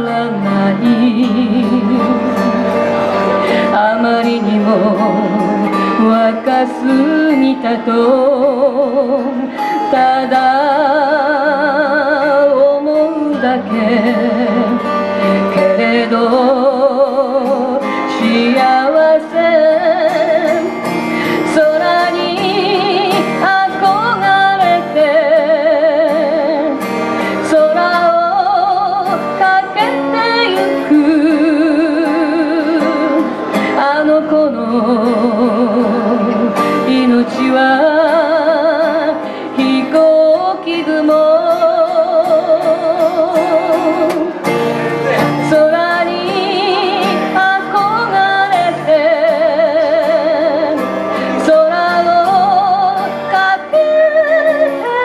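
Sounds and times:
woman singing with vibrato: 0.0 - 44.5, 45.2 - 55.0
acoustic guitar: 0.0 - 55.0.

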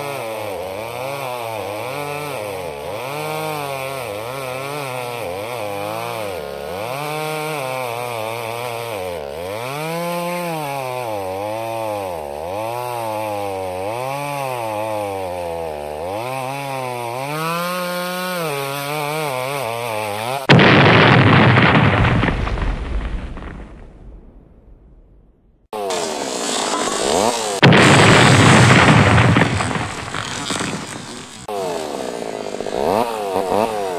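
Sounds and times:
chainsaw revving: 0.0 - 21.2, 25.7 - 33.9
loud crash: 20.5 - 25.5, 26.4 - 31.5.

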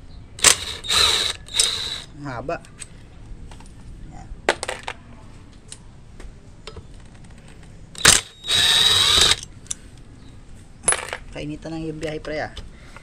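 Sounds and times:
drill bit clicking against bolt: 0.4 - 2.1, 8.0 - 9.5
power drill whining: 0.4 - 2.1, 8.0 - 9.4.

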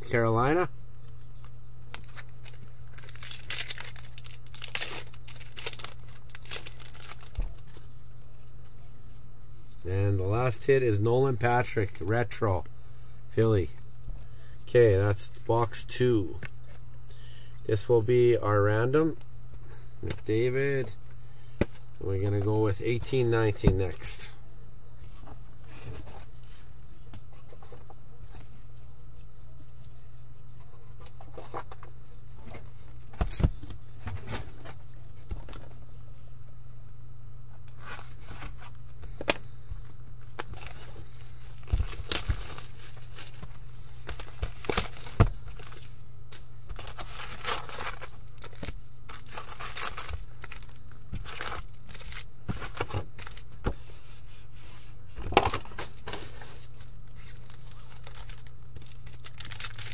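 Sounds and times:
steady low hum: 0.0 - 59.9
wrapping crinkling and tearing: 1.9 - 7.7, 40.2 - 45.9, 46.6 - 53.5, 55.7 - 59.9.

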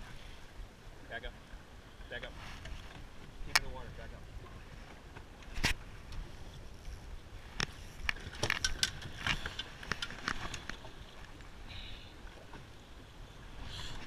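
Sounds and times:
low wind and water noise: 0.0 - 14.0
clicks and knocks of hard objects: 7.6 - 10.8.

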